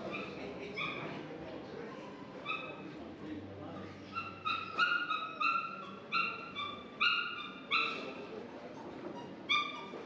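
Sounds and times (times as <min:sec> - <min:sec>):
dog yipping: 0:04.3 - 0:08.0, 0:09.5 - 0:09.9.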